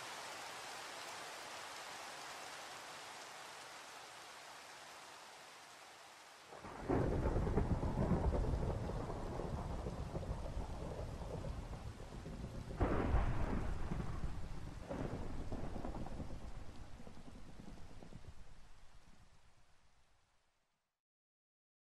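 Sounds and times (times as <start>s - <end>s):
steady rain: 0.0s - 20.7s
thunder rumbling: 6.6s - 19.4s.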